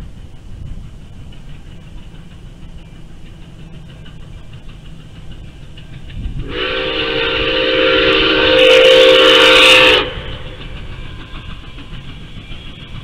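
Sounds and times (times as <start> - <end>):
steam whistle blast: 6.4 - 10.5.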